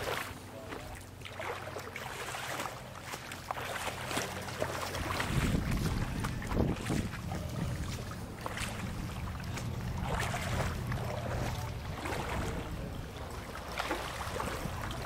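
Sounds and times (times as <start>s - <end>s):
wind buffeting microphone: 4.9s - 15.0s.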